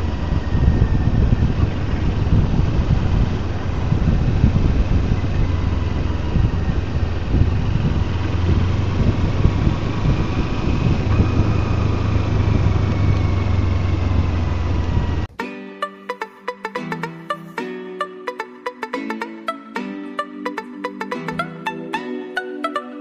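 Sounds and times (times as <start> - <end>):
motorcycle engine at low revs: 0.0 - 15.3.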